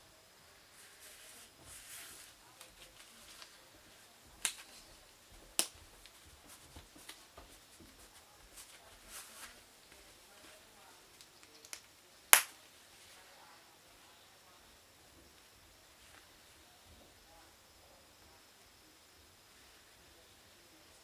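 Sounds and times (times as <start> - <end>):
leather gloves rustling: 0.8 - 11.3.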